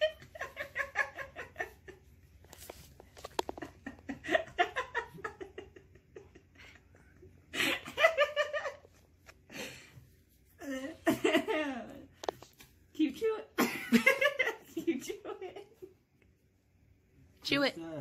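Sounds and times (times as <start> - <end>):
people laughing and giggling: 0.0 - 2.2, 3.2 - 9.9, 10.6 - 12.0, 13.6 - 16.0.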